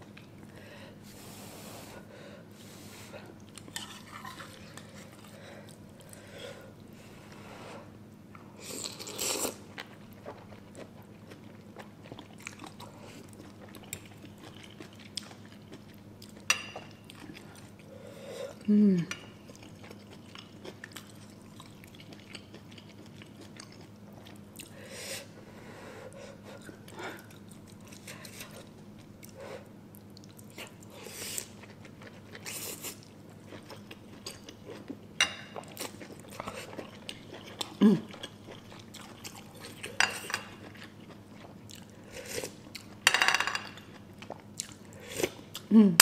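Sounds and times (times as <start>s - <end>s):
chewing and biting: 8.8s - 17.8s, 19.5s - 24.7s, 35.6s - 43.0s
person humming: 18.6s - 19.1s, 45.7s - 46.0s.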